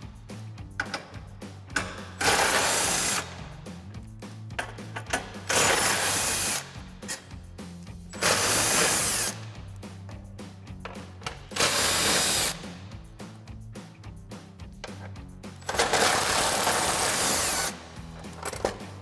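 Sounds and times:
impact wrench bursts: 0:00.8 - 0:03.5, 0:04.6 - 0:07.3, 0:08.1 - 0:09.5, 0:10.8 - 0:12.8, 0:15.6 - 0:18.8.

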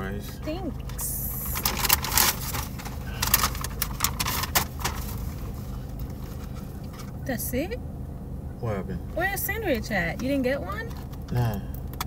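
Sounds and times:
steady low hum: 0:00.0 - 0:12.0
paper bag rustling and crinkling: 0:01.4 - 0:07.2.

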